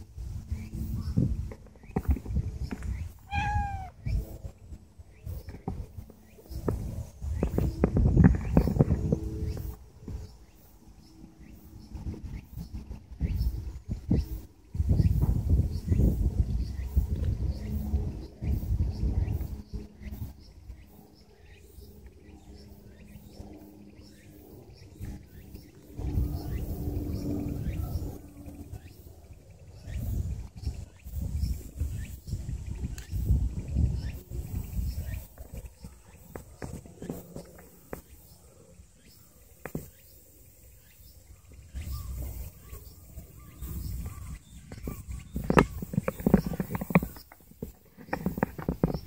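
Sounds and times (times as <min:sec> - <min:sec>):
low rumbling on microphone: 0:00.0 - 0:49.0
faint bird chirps: 0:02.8 - 0:04.4.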